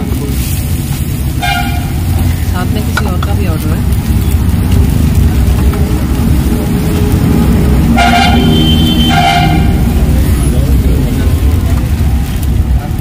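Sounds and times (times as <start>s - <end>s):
low rumble: 0.0s - 13.0s
vehicle horn honks: 1.4s - 1.9s, 7.9s - 9.9s.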